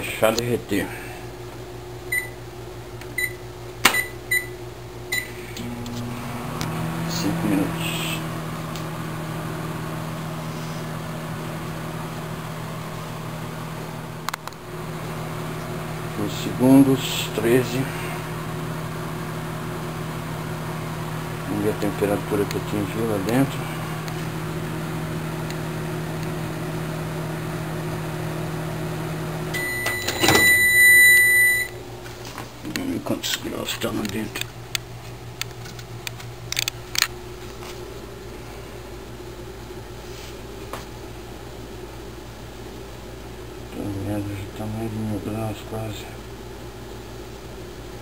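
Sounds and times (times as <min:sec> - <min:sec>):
microwave oven humming: 0:00.0 - 0:48.0
long beep: 0:29.6 - 0:31.8.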